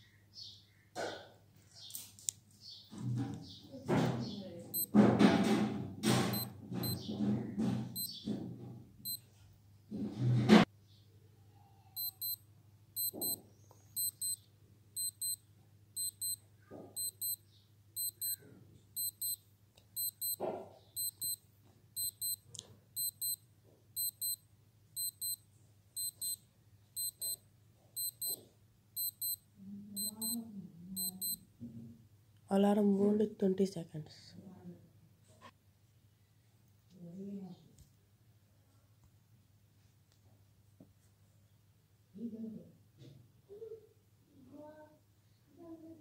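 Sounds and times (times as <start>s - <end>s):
wristwatch alarm double beeps: 4.7s - 4.9s, 6.3s - 7.0s, 8.0s - 8.2s, 12.0s - 12.4s, 13.0s - 13.4s, 14.0s - 14.4s, 15.0s - 15.4s, 16.0s - 16.4s, 17.0s - 17.4s, 18.0s - 18.4s, 19.0s - 19.4s, 20.0s - 20.4s, 21.0s - 21.4s, 22.0s - 22.4s, 23.0s - 23.4s, 24.0s - 24.4s, 25.0s - 25.4s, 26.0s - 26.4s, 27.0s - 27.4s, 28.0s - 28.4s, 29.0s - 29.4s, 30.0s - 30.4s, 31.0s - 31.4s.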